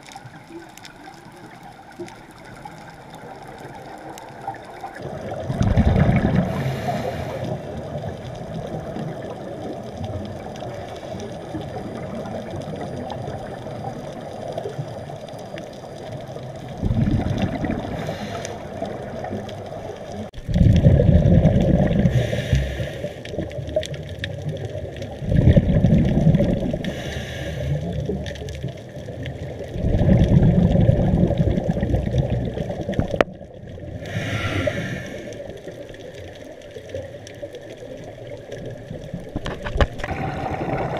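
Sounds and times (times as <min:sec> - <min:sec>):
exhaled bubbles rumbling: 0:00.0 - 0:40.9
underwater noise: 0:00.0 - 0:40.9
regulator inhale hiss: 0:06.4 - 0:07.8, 0:17.9 - 0:19.0, 0:22.0 - 0:23.4, 0:26.8 - 0:28.1, 0:34.0 - 0:35.6.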